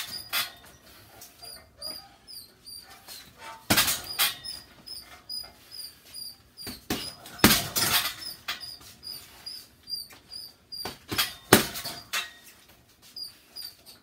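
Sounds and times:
faint high squeak: 0.0s - 7.2s, 13.1s - 14.0s
boxing gloves hitting punching bag: 3.7s - 4.4s, 6.6s - 8.3s, 10.8s - 12.1s.

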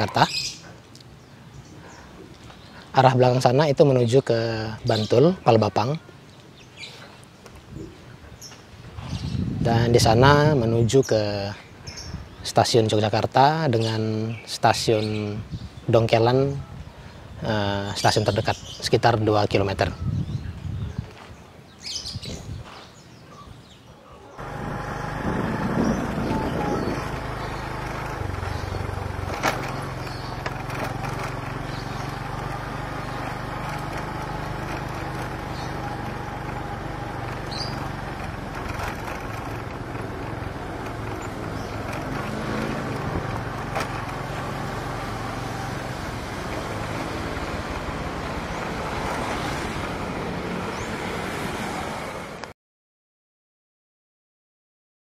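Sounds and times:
wind and road noise: 0.0s - 52.5s
motorcycle engine hum: 24.4s - 52.3s.

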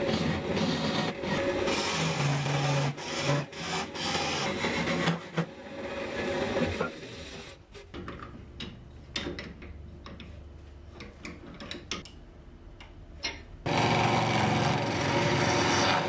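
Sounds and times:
lathe humming: 13.7s - 16.0s
turning tool cutting on lathe: 13.7s - 16.0s.

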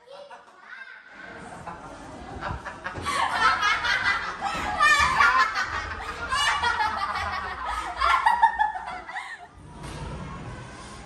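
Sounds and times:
girls laughing: 1.2s - 9.6s.

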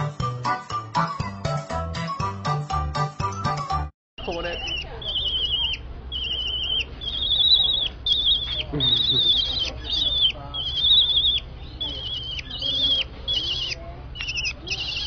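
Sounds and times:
bird warbling calls: 4.2s - 15.0s.

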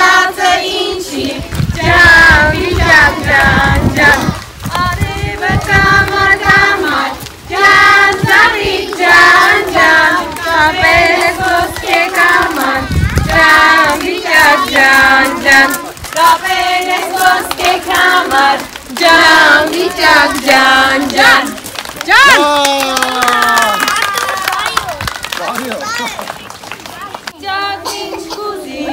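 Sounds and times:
children singing in chorus: 0.0s - 21.6s, 27.4s - 28.9s
women singing: 0.0s - 21.6s, 27.4s - 28.9s.

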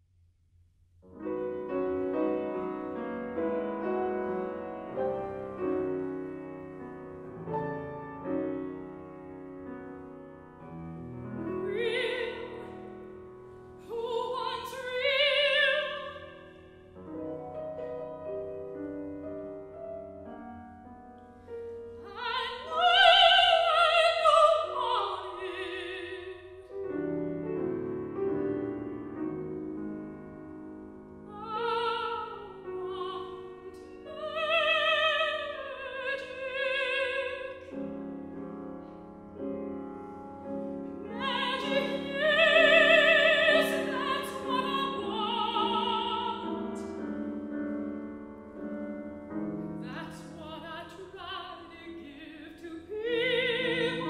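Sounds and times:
grand piano accompaniment: 1.0s - 54.0s
operatic soprano singing: 11.5s - 12.8s, 13.8s - 16.6s, 22.0s - 26.7s, 31.3s - 37.7s, 41.0s - 47.0s, 49.8s - 54.0s.

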